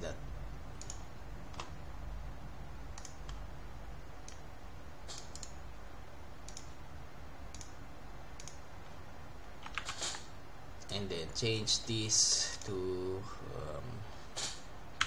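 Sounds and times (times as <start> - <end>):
low steady hum: 0.0 - 15.0
computer mouse clicking: 0.8 - 1.8, 2.9 - 3.5, 4.2 - 4.5, 5.1 - 5.6, 6.4 - 6.8, 7.5 - 8.7, 9.6 - 10.3.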